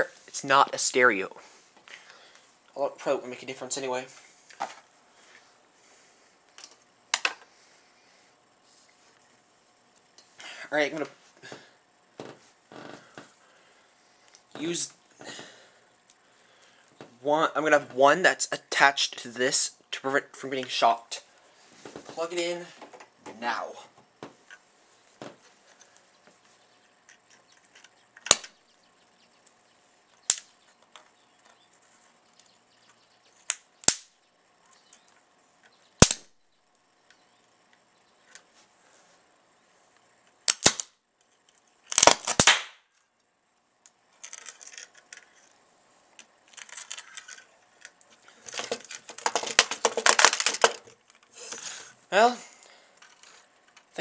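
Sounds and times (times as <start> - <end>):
electrical arc pops: 28.2 - 28.6, 33.4 - 34.2, 36.0 - 36.4, 40.4 - 41.0, 41.9 - 42.9
crackling electrical arc: 36.0 - 36.4, 40.4 - 41.0, 41.8 - 42.8.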